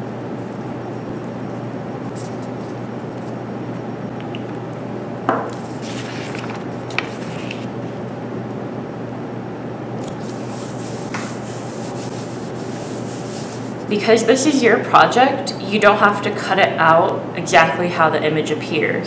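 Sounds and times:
room noise hum: 0:00.0 - 0:19.0
paper sheets rustling: 0:05.6 - 0:07.7, 0:10.0 - 0:13.9
glue stick rubbing on paper: 0:10.2 - 0:13.9.

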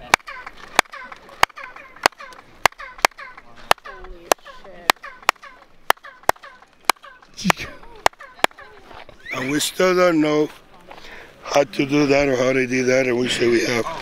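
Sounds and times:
hand claps: 0:00.1 - 0:08.7
chirping echo from stone steps: 0:00.1 - 0:09.7.

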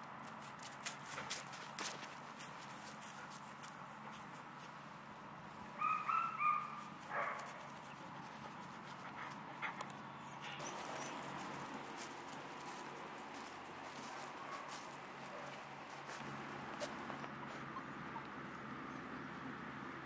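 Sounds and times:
puppy yelping: 0:05.8 - 0:07.4, 0:17.2 - 0:18.4.

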